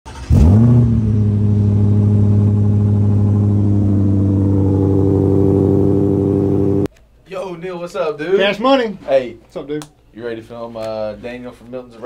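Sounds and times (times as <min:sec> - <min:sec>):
car engine starting and idling: 0:00.1 - 0:06.9.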